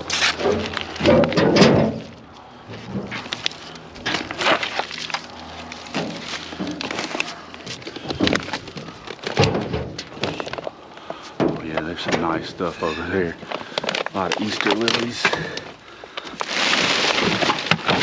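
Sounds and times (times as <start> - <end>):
plastic pots clattering and rustling: 0.0 - 18.0.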